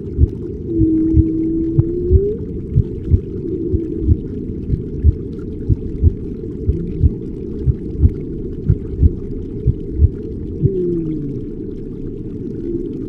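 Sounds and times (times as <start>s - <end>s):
muffled underwater ambience: 0.0s - 13.0s
whale-like call: 0.6s - 2.6s, 3.4s - 4.4s, 6.7s - 7.2s, 10.6s - 11.8s, 12.4s - 13.0s.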